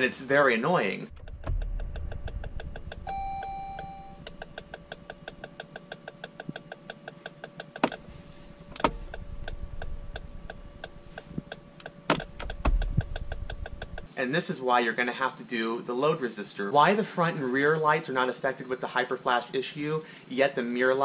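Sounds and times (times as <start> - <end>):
turn signal rapid ticking: 1.1 - 14.1
warning chime: 3.1 - 4.2.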